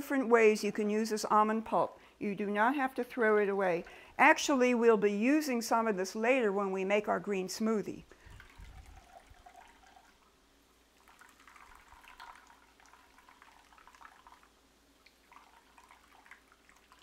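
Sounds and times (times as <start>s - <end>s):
milk dripping into bowl: 8.1s - 10.4s, 11.0s - 17.0s.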